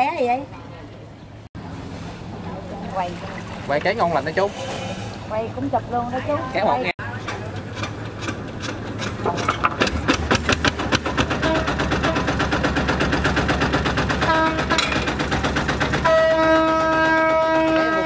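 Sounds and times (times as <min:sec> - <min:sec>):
boat engine chugging: 0:06.6 - 0:18.0
horn tone: 0:11.4 - 0:12.3, 0:14.2 - 0:15.0, 0:16.0 - 0:18.0.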